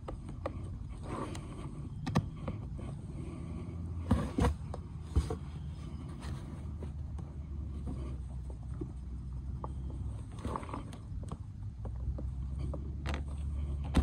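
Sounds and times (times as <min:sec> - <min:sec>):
handling clicks and knocks: 0:04.1 - 0:14.0.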